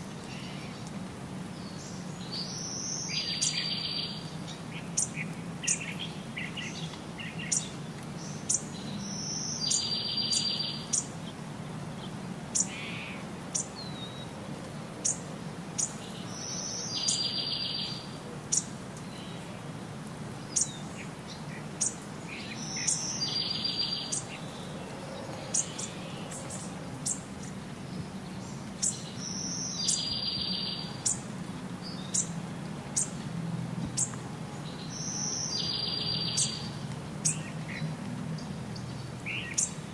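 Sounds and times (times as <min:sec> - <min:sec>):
bird song with fast trill: 0:01.6 - 0:11.1, 0:15.8 - 0:19.4, 0:20.5 - 0:24.7, 0:28.3 - 0:31.2, 0:34.0 - 0:37.8.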